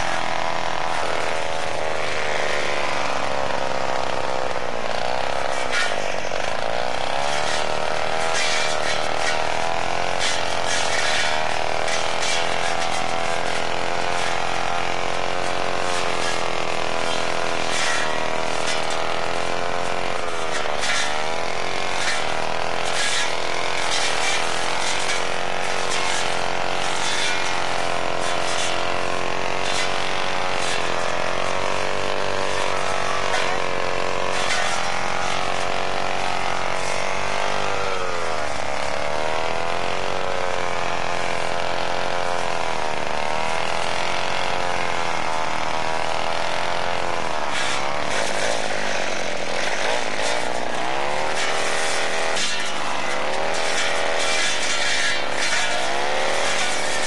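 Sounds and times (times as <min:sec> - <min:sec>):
brushcutter engine running: 0:00.0 - 0:57.0.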